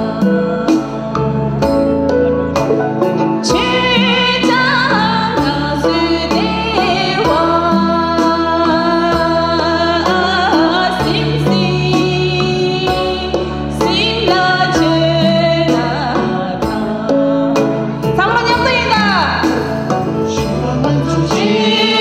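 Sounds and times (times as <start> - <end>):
woman singing into a microphone: 0.0 - 2.0, 3.4 - 22.0
amplified backing music with beat: 0.0 - 22.0.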